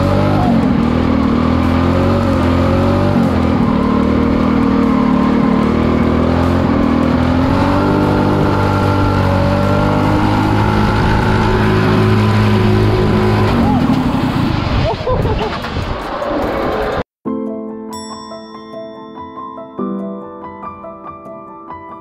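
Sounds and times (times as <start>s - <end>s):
kart engine revving: 0.0s - 17.0s.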